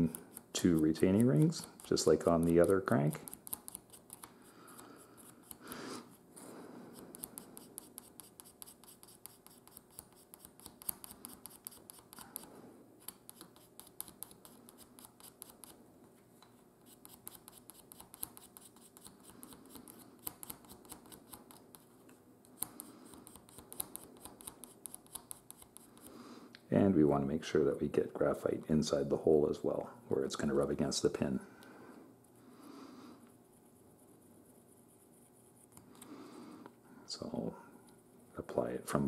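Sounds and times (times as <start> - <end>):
pencil scratching on wood: 0.0 - 6.2, 6.9 - 15.8, 16.8 - 21.9, 22.6 - 26.1.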